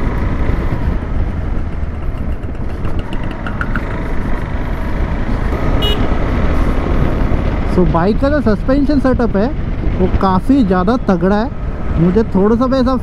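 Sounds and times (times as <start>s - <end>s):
motorcycle engine running: 0.0s - 7.4s
wind rumble on microphone: 0.0s - 13.0s.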